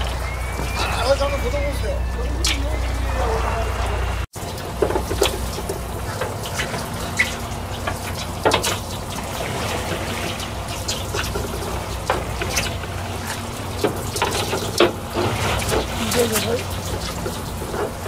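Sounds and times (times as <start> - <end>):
seawater splashing against boat: 0.0 - 18.0.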